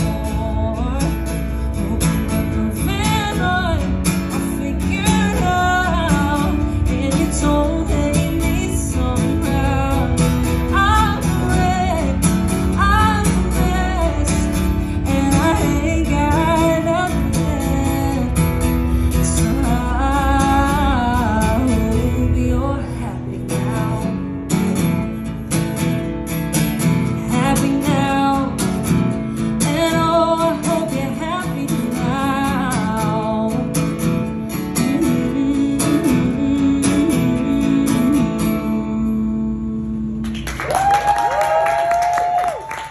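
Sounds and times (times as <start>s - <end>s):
woman singing: 0.0s - 24.6s, 27.2s - 40.2s
strummed acoustic guitar: 0.0s - 40.6s
clapping and cheers: 40.2s - 42.9s.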